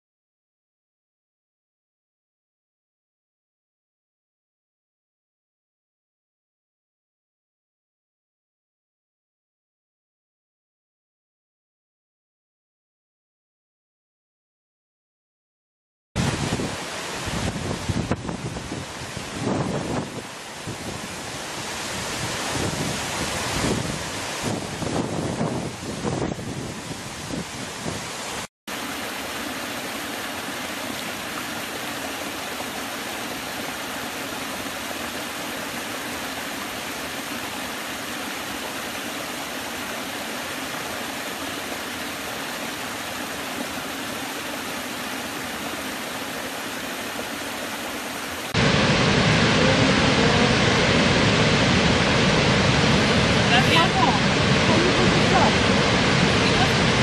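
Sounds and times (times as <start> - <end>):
large waterfall roaring: 16.2 - 57.0
water rushing over cascade: 16.2 - 57.0.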